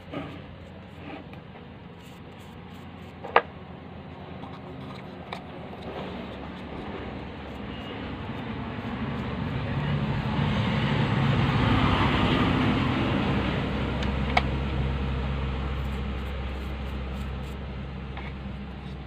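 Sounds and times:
vehicle passing: 5.4s - 18.0s.

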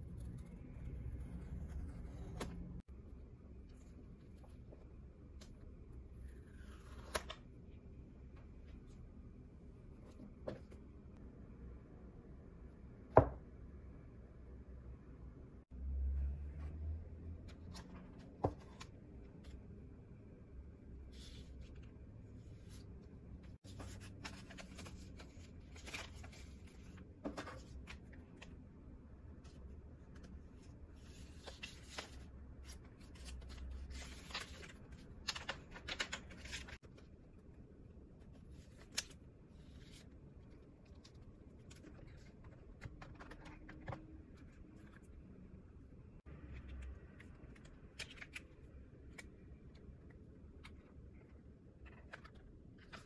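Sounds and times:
paper packaging rustling and crinkling: 23.6s - 28.5s, 31.0s - 37.0s.

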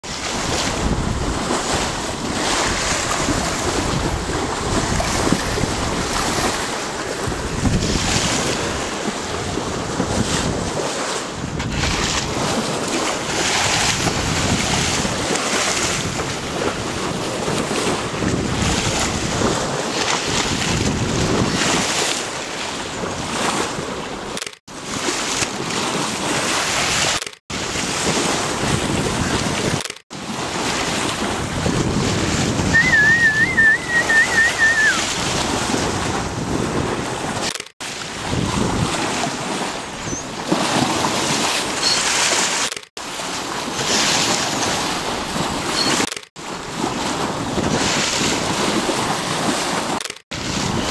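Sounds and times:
wind buffeting microphone: 0.0s - 42.2s, 43.1s - 50.9s
water rushing along hull: 0.0s - 50.9s
warbling whistle: 32.7s - 35.0s.

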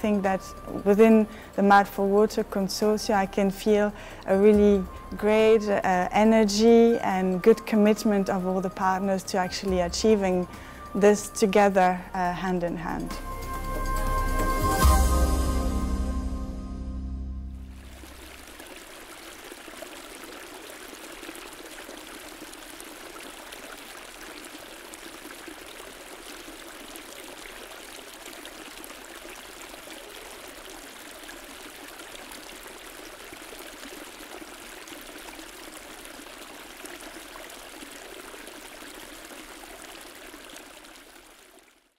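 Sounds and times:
running water rushing: 17.6s - 41.9s.

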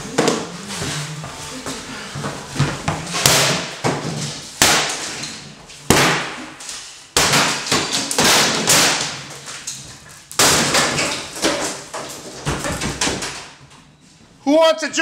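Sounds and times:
sledgehammer blows on wood: 2.6s - 9.4s
debris crashing and clattering: 3.1s - 13.6s.

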